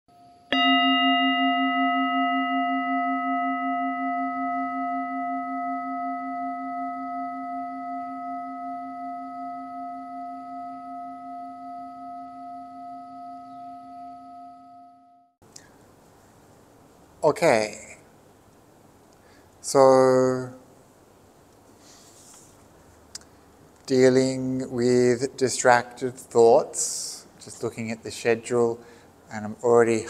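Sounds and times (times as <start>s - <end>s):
meditation bell ringing: 0.2s - 15.4s.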